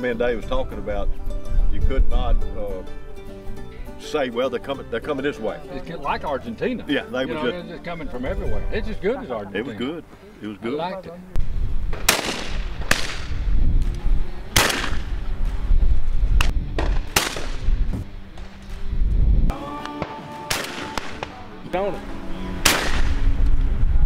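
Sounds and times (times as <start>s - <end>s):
loud shotgun shots: 11.9s - 13.4s, 14.5s - 15.1s, 16.8s - 17.7s, 20.5s - 21.4s, 22.6s - 23.2s.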